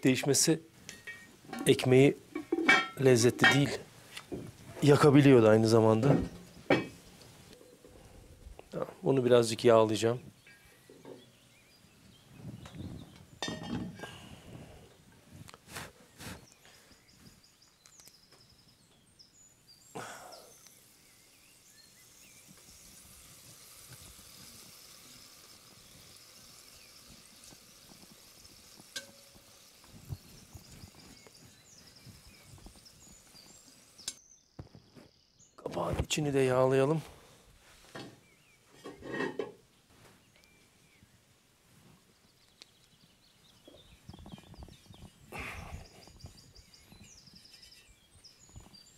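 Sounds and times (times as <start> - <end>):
faint hiss: 0.0 - 34.4
clinks of cast-iron pot and handle: 0.9 - 1.7, 2.3 - 3.8, 13.4 - 14.0, 28.9 - 29.3.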